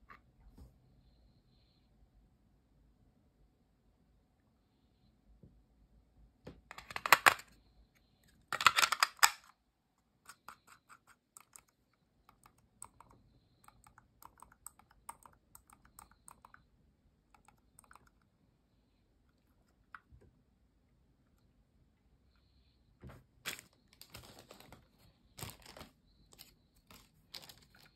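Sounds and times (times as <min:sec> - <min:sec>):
soft mouse clicks: 0:10.3 - 0:16.7, 0:17.3 - 0:18.4.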